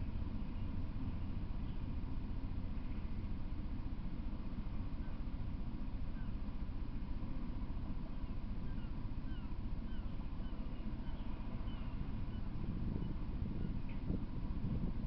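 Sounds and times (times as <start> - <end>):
low rumbling noise: 0.0 - 15.0
bird chirping: 8.6 - 13.8.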